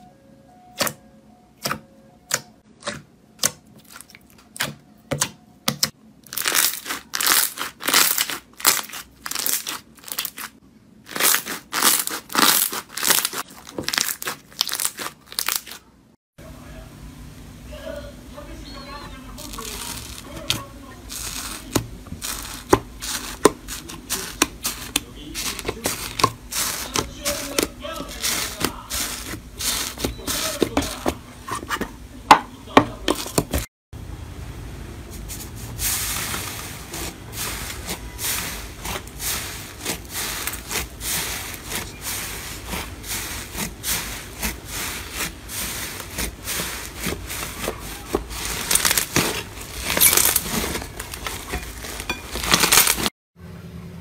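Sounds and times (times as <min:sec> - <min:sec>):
slime squishing and crackling: 0:06.2 - 0:15.9, 0:19.4 - 0:31.2, 0:35.9 - 0:53.1.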